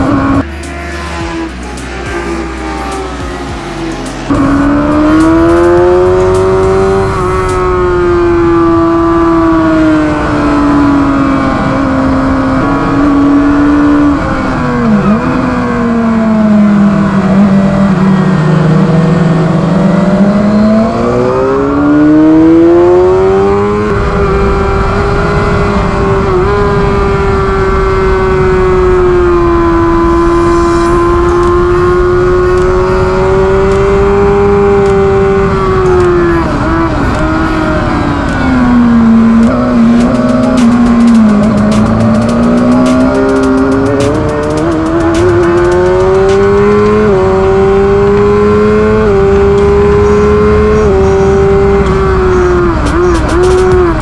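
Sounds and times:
motorcycle engine racing: 0.0s - 54.0s
rush of wind noise: 20.9s - 54.0s.

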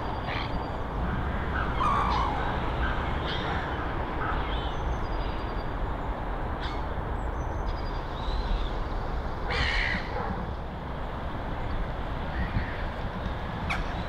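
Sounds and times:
birds chirping: 0.0s - 10.2s.

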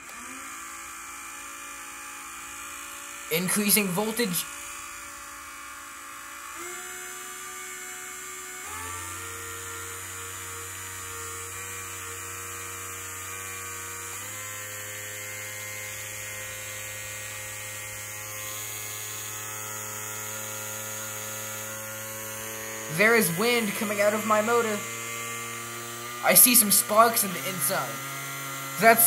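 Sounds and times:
small electric motor whining: 0.0s - 29.0s.

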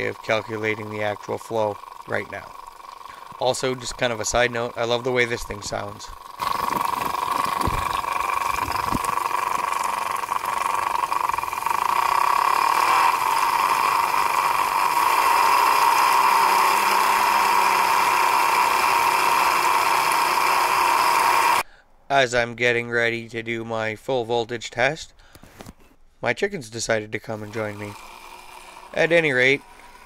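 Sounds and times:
turbine high whine: 0.0s - 21.6s, 27.3s - 30.0s
water spraying and splashing: 5.4s - 11.3s.

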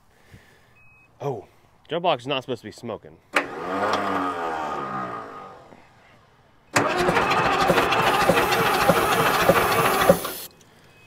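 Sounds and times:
diesel engine cranking: 3.3s - 6.0s, 6.7s - 10.5s.

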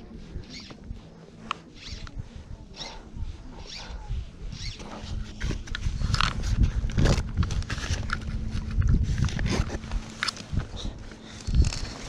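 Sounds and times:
gear knocking and rustling: 4.6s - 12.0s.

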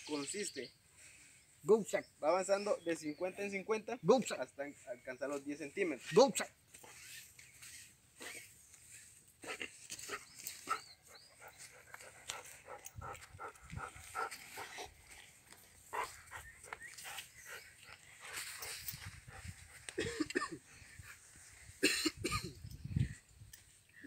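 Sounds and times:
dog sniffing and panting: 9.4s - 20.0s.

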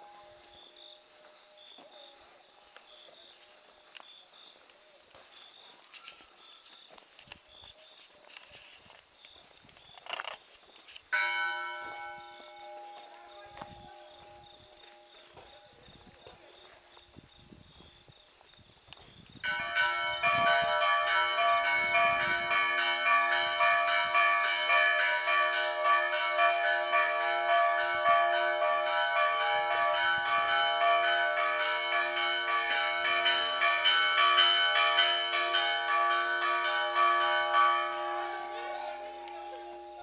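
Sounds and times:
church bells ringing a peal: 11.1s - 15.8s, 19.4s - 40.0s.

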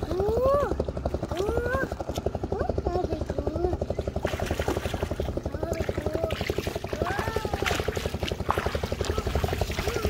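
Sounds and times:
engine running with pulsing beat: 0.0s - 10.0s.

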